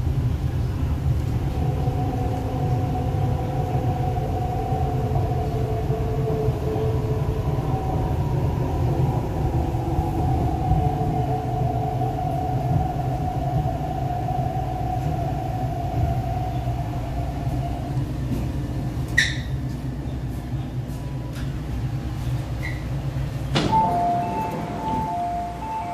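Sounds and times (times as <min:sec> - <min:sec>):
electric train rumble: 0:00.0 - 0:25.9
train motor tone: 0:23.5 - 0:25.9.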